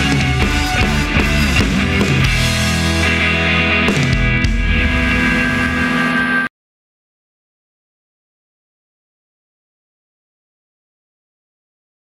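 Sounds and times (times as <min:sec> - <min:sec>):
loud rock band music: 0:00.0 - 0:06.5
drum hits: 0:03.9 - 0:06.2.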